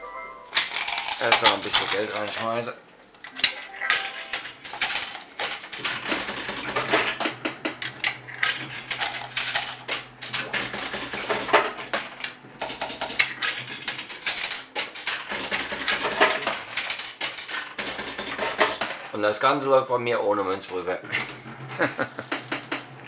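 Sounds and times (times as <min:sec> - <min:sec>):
coins clattering through slot machine: 0:00.5 - 0:02.6, 0:03.4 - 0:07.2, 0:07.9 - 0:19.1
machine humming: 0:00.5 - 0:23.0
counter clicking: 0:03.2 - 0:19.1.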